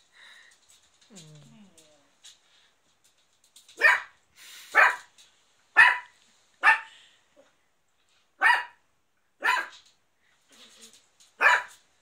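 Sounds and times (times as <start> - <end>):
puppy barking: 3.8 - 4.2, 4.8 - 5.1, 5.8 - 6.9, 8.4 - 8.8, 9.4 - 9.8, 11.4 - 11.8.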